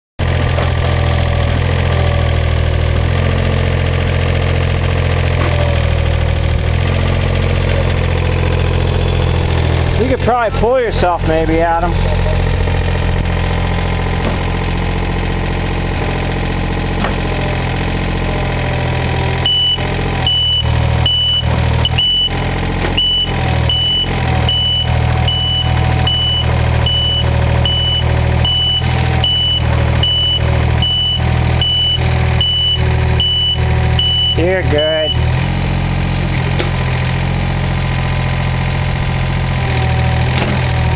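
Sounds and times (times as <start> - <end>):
excavator diesel engine running: 0.2 - 40.9
travel alarm beeping: 19.4 - 22.4, 23.0 - 35.2.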